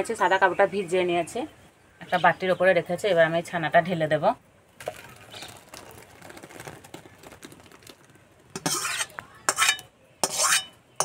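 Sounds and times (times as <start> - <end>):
curds pouring with soft splashing: 4.8 - 9.0
metal spoon scraping bowl: 8.6 - 10.8.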